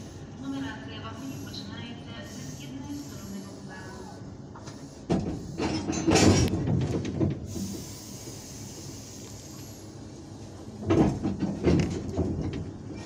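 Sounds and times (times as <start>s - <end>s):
steady hiss: 7.5s - 10.2s.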